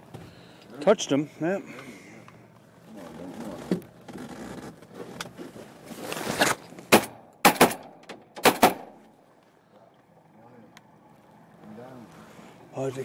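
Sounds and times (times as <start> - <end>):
shotgun blasts: 6.9 - 9.0.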